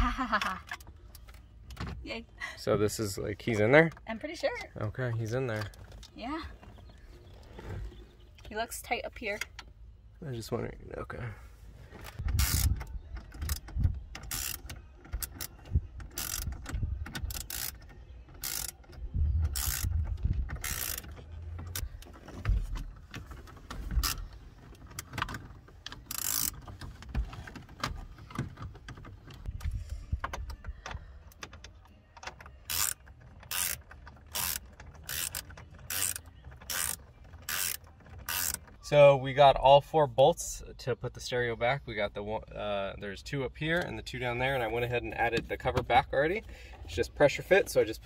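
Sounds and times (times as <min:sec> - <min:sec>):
socket ratchet clicking: 0:13.4 - 0:21.8, 0:26.0 - 0:26.7, 0:32.6 - 0:38.7.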